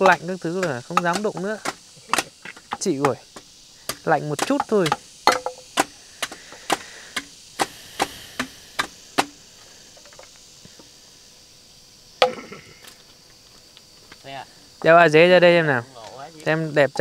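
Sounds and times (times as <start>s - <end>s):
hand tool blows: 0.0s - 11.4s.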